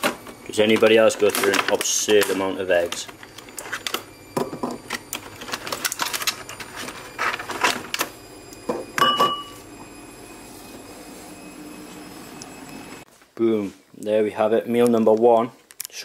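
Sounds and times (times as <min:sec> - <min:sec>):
ceramic bowl ringing: 0:08.7 - 0:09.6.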